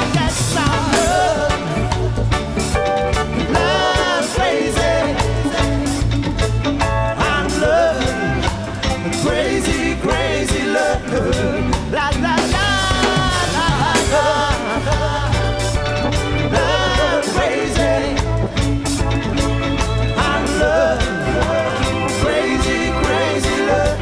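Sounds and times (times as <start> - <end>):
man singing: 0.0 - 2.4, 7.1 - 15.8, 16.4 - 18.4, 20.1 - 24.0
electric bass: 0.0 - 24.0
electric guitar: 0.0 - 24.0.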